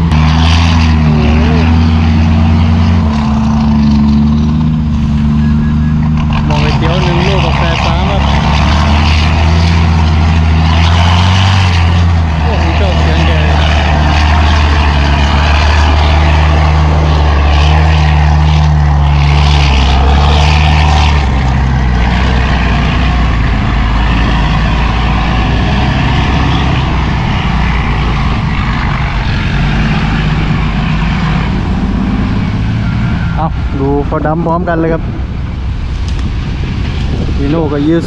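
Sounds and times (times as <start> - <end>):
diesel truck engine droning: 0.0 - 38.0.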